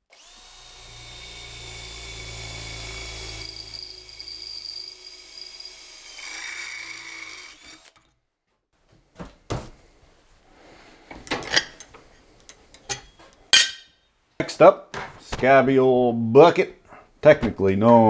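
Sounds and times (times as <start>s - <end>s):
drill boring through metal: 0.0s - 8.0s
metal plates clinking: 12.7s - 14.0s.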